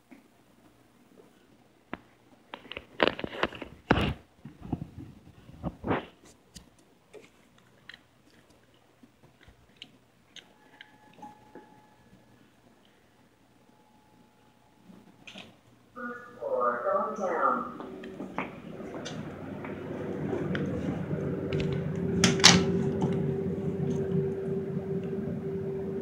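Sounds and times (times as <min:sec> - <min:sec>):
faint steady tone: 0:10.4 - 0:15.3.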